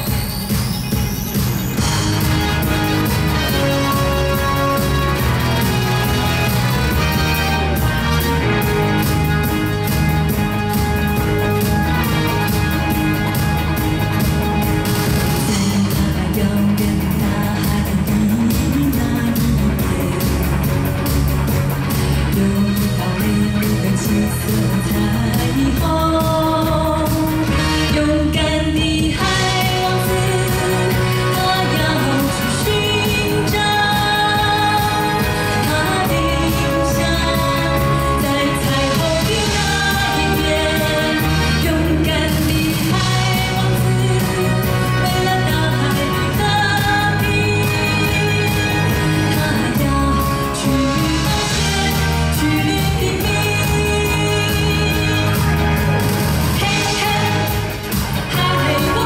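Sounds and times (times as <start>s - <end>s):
steady drum beat: 0.0s - 27.5s
electric guitar: 0.0s - 28.0s, 29.1s - 59.0s
keyboard: 0.0s - 59.0s
pop band playing: 0.0s - 59.0s
woman singing: 14.9s - 21.2s, 22.1s - 59.0s.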